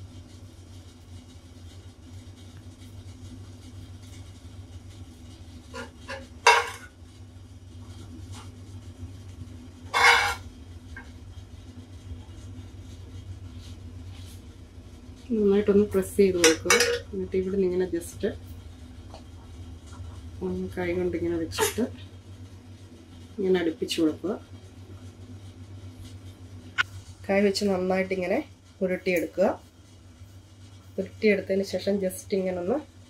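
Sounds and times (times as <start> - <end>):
steady low hum: 0.0 - 33.0
spoon scraping frying pan: 5.7 - 7.0, 9.9 - 11.1, 16.4 - 17.1.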